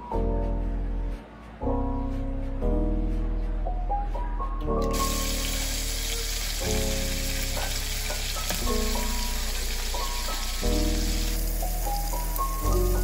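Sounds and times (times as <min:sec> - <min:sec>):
crab sizzling in hot oil: 0:04.9 - 0:13.0.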